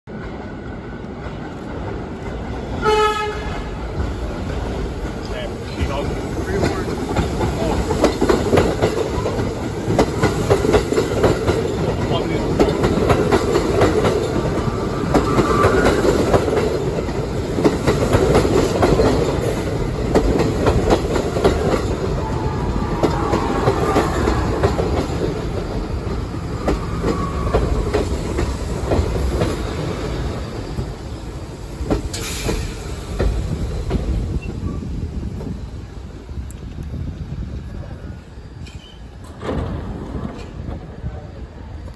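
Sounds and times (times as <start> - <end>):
subway train rolling past: 0.1 - 41.9
wheels clicking over rail joints: 4.3 - 30.1.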